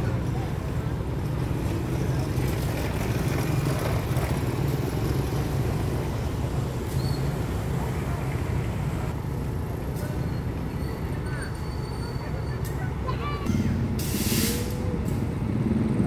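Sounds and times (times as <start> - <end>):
diesel locomotive engine rumbling: 0.0 - 16.0.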